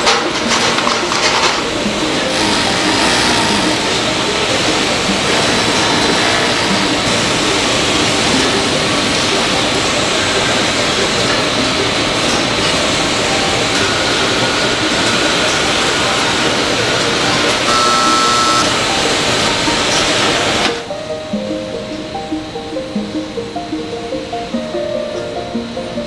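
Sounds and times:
factory machinery din: 0.0 - 20.9.

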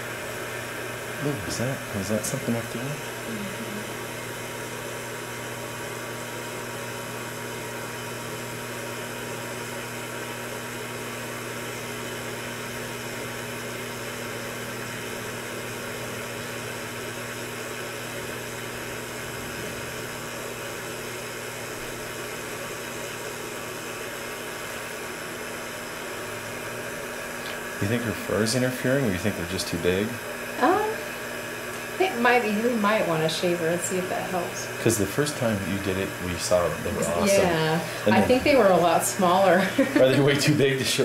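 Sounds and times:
low hum with hiss: 0.0 - 8.6, 26.2 - 41.0.

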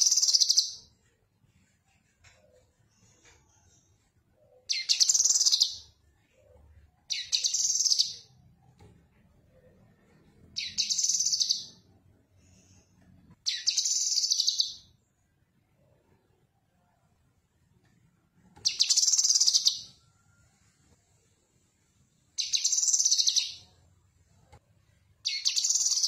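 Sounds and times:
bird singing rapid trills: 7.1 - 8.3, 10.6 - 11.8, 22.4 - 23.7, 25.3 - 26.0.

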